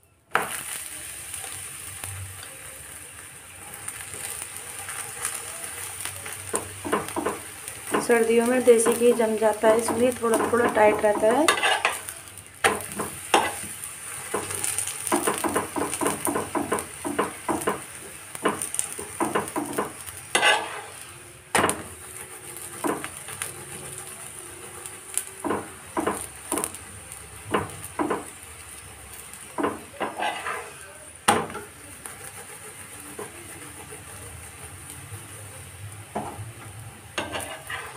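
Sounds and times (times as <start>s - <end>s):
flatbread sizzling in ghee: 0.0s - 37.9s
metal spoon tapping and scraping: 6.5s - 12.0s, 12.6s - 13.7s, 18.4s - 20.8s, 29.6s - 31.7s, 37.2s - 37.9s.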